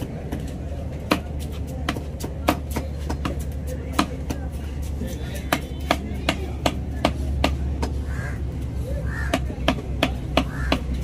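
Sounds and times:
knife chopping on wooden block: 1.0 - 4.5, 5.4 - 8.0, 9.3 - 11.0.

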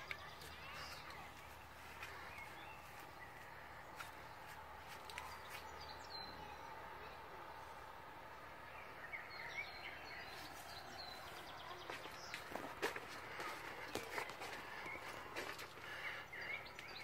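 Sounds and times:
faint outdoor background noise: 0.0 - 17.0
bird chirps: 13.3 - 17.0.

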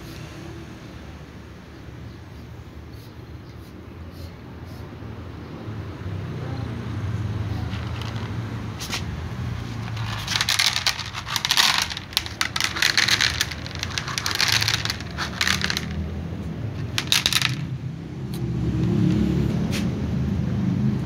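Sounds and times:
kibble clattering onto plastic tray: 7.7 - 8.3, 9.8 - 16.0, 16.8 - 17.7.

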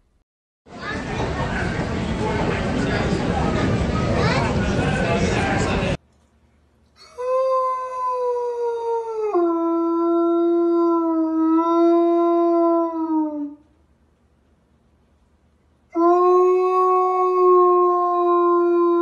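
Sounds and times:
dog howling: 16.0 - 19.0.

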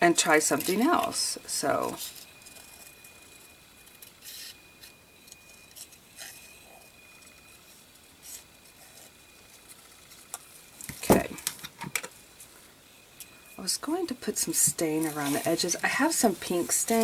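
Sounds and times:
paper rustling and scraping: 3.8 - 6.6, 7.3 - 11.2, 14.5 - 17.0.

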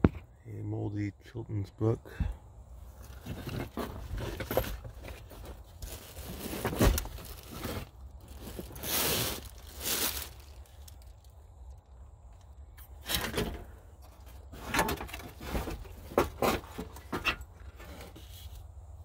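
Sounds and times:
plastic bags crinkling: 4.9 - 11.4.

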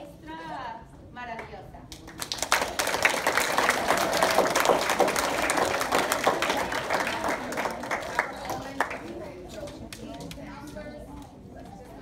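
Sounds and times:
audience applauding: 2.1 - 9.0.

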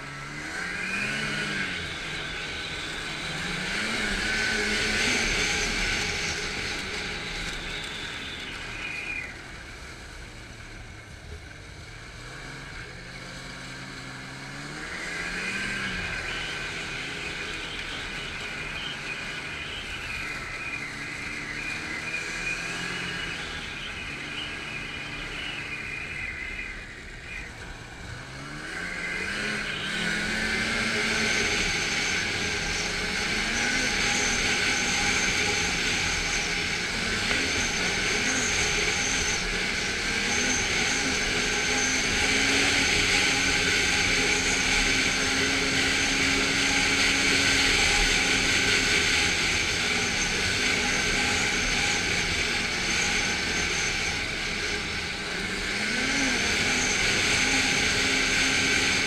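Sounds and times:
snowmobile engine revving: 0.0 - 59.0
steady rushing noise: 14.6 - 59.0.

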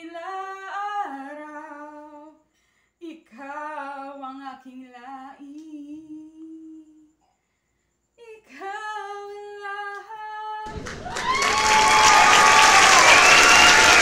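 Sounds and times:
loud applause: 10.7 - 14.0.

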